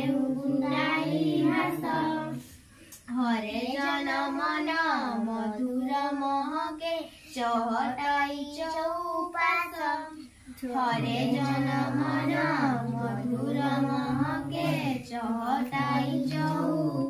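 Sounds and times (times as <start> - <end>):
children singing: 0.0 - 2.5, 9.1 - 17.0.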